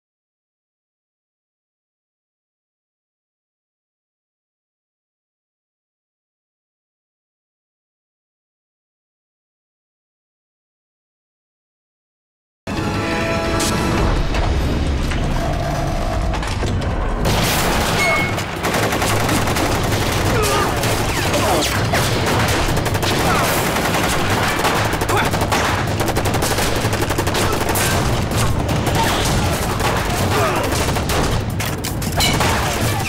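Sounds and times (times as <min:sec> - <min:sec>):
rapid gunfire: 0:17.2 - 0:33.0.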